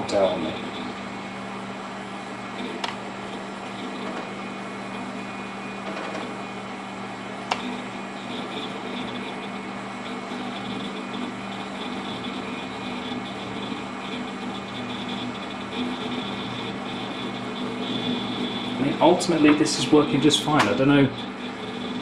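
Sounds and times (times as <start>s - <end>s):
computer fans whirring: 0.0s - 22.0s
sharp click: 7.5s - 7.7s, 20.6s - 20.8s.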